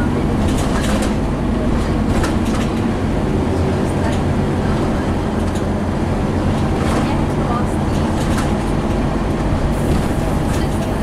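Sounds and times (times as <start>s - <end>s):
bus diesel engine running: 0.0s - 11.0s.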